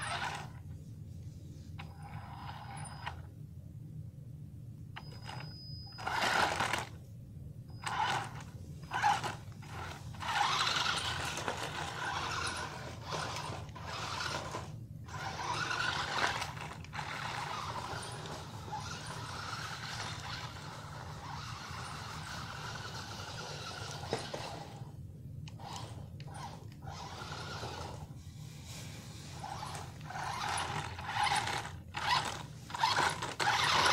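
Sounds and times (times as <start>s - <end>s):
rc car electric motors: 0.0s - 0.6s, 1.8s - 3.2s, 5.0s - 7.0s, 7.8s - 24.9s, 25.5s - 28.1s, 29.3s - 33.9s.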